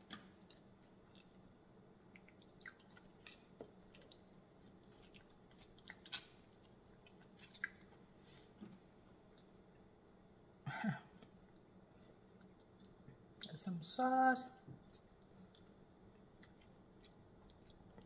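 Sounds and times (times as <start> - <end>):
quiet chewing: 0.1 - 1.4, 2.0 - 10.1, 11.1 - 13.6, 14.8 - 18.0.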